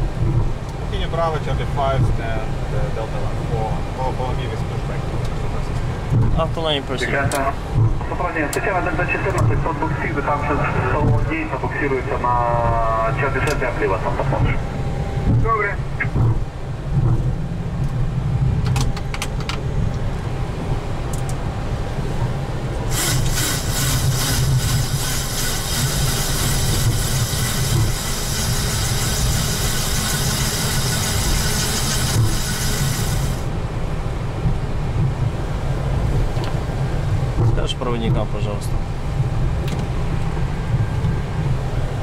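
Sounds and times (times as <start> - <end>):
aircraft engines idling rumble: 0.0 - 42.0
loud hiss: 22.9 - 33.5.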